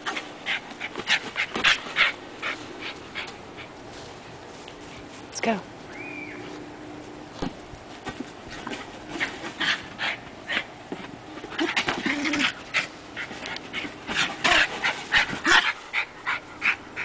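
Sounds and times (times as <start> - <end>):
dog panting hard: 12.6 - 17.0.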